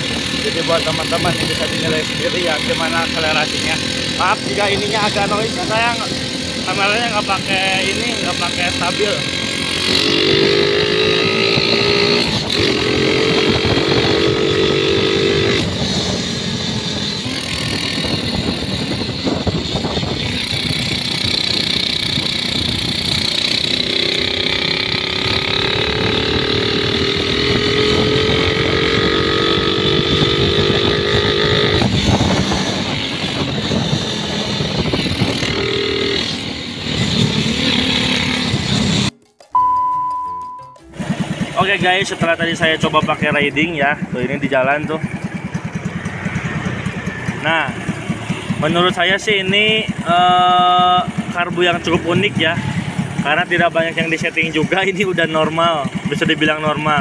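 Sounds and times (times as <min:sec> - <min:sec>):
scooter engine accelerating: 0:00.0 - 0:39.8, 0:40.8 - 0:57.0
wind noise on microphone: 0:09.9 - 0:23.4, 0:24.3 - 0:39.1.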